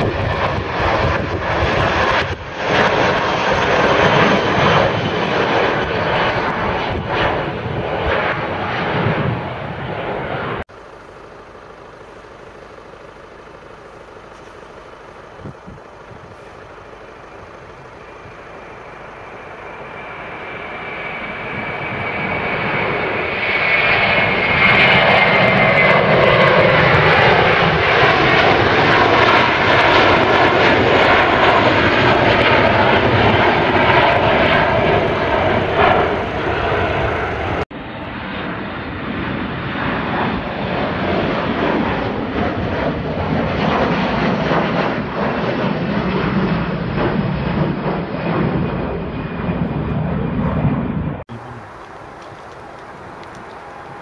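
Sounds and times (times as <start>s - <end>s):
jet engines at takeoff: 0.0s - 54.0s
high whine sliding down: 9.9s - 25.1s.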